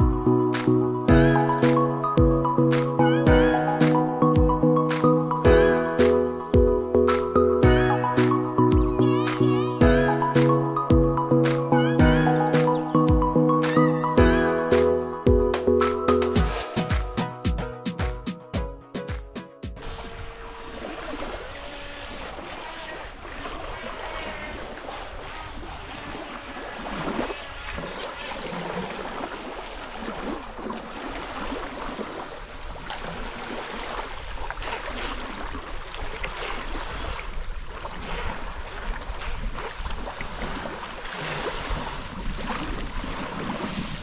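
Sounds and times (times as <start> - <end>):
small waves lapping on pebbles: 19.8 - 44.0
wind rumbling on microphone: 30.2 - 44.0.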